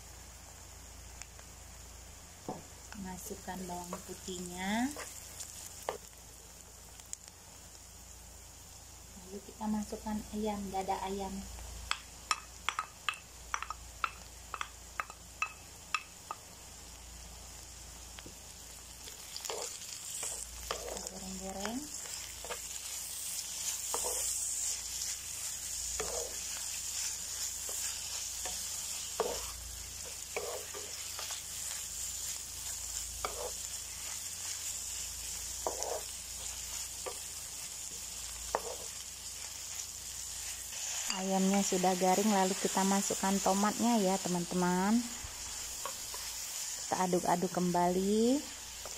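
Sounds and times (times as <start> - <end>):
food sizzling in oil: 0.0 - 48.9
wooden spatula scraping pan: 23.6 - 25.0, 25.9 - 29.6, 30.3 - 31.4, 33.2 - 34.2, 35.6 - 36.1.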